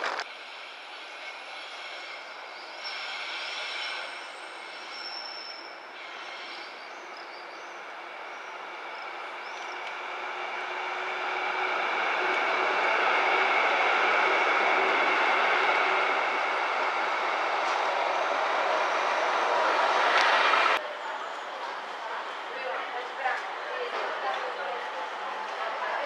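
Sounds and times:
faint high squeal: 1.0s - 9.8s
passing traffic: 8.2s - 24.1s.

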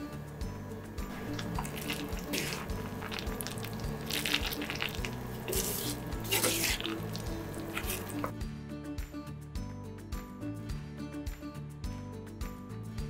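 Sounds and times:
soft background music: 0.0s - 13.0s
wet squelching of spaghetti: 1.2s - 8.3s.

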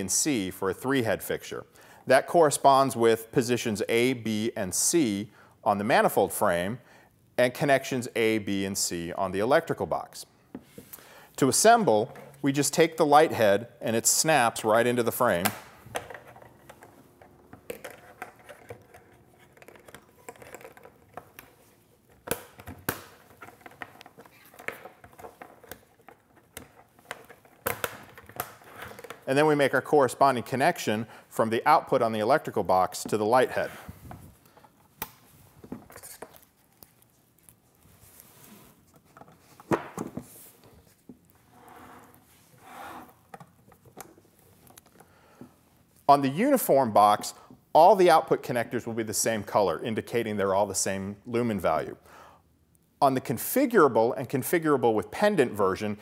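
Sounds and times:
rustling of cables and gloves: 15.8s - 30.2s, 32.6s - 46.1s
cable and glove rustling: 32.5s - 46.1s.

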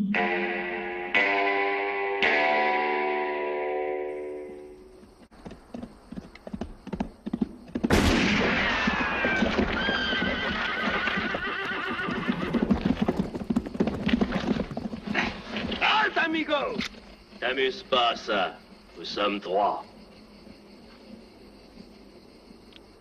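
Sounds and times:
horses galloping hoofbeats: 4.9s - 19.3s
horse whinnying: 8.6s - 15.9s.

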